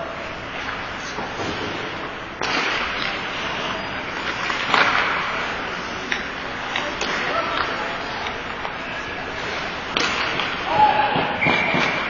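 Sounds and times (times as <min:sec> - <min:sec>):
hockey sticks knocking: 0:02.4 - 0:03.2, 0:04.2 - 0:05.4, 0:06.0 - 0:08.8, 0:09.4 - 0:12.0.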